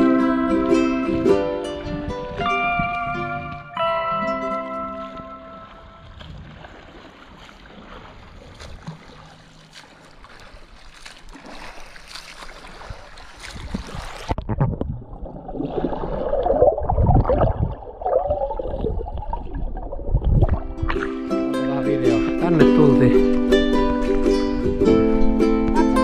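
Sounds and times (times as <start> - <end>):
water lapping and splashing: 0.0 - 3.8, 4.4 - 26.0
muffled underwater churning and bubbles: 5.1 - 21.5.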